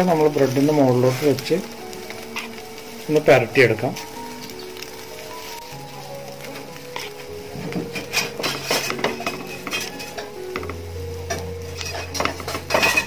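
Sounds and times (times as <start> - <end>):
metal spoon scraping a pan: 2.1 - 2.9, 6.5 - 13.0.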